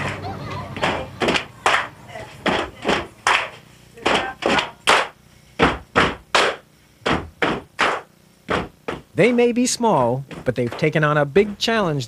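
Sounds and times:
hands clapping a rhythm: 0:00.8 - 0:09.4.

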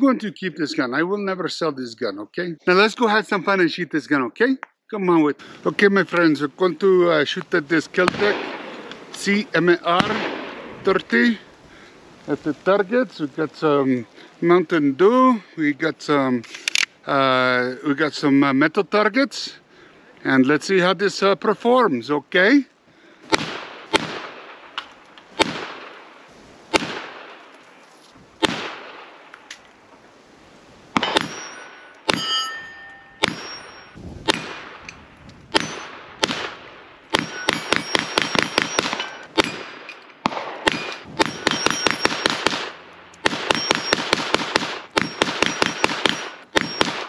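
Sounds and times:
rifle shots: 0:07.8 - 0:11.4, 0:23.3 - 0:27.5, 0:28.4 - 0:29.4, 0:30.9 - 0:32.3, 0:33.1 - 0:47.0
steel plates clanging: 0:31.0 - 0:34.0.

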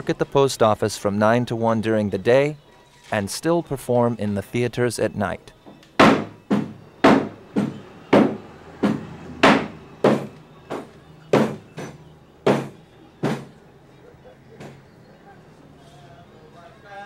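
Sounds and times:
hand stamp knocking on desk: 0:06.0 - 0:13.5.

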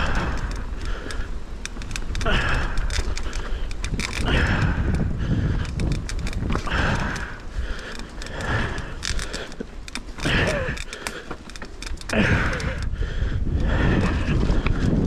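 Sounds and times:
mountain bike rattling: 0:00.0 - 0:15.0
tyres and wind rumble: 0:00.0 - 0:15.0.

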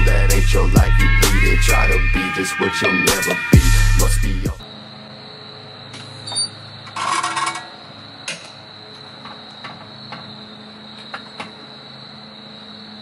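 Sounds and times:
metal tools clanking on concrete: 0:05.9 - 0:10.3.

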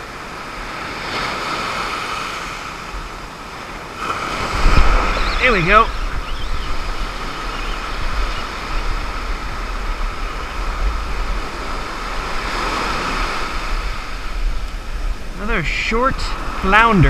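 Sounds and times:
surf breaking on sand: 0:00.0 - 0:17.0
wind on microphone: 0:04.0 - 0:17.0.

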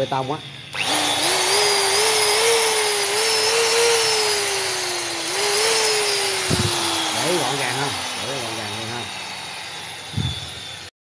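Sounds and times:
hammer drill motor whining: 0:00.0 - 0:10.9.

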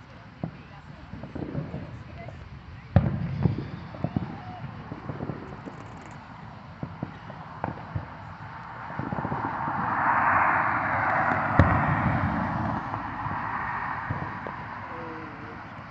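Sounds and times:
distant fireworks popping: 0:00.0 - 0:15.9
car passing: 0:05.0 - 0:15.9.

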